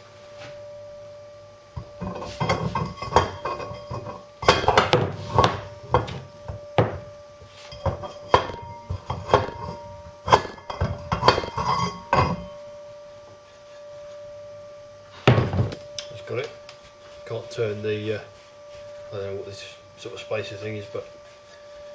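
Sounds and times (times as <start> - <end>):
metal ringing tone: 0.0 - 21.9
metal pole clanking on shaft: 1.8 - 6.2, 7.6 - 12.6.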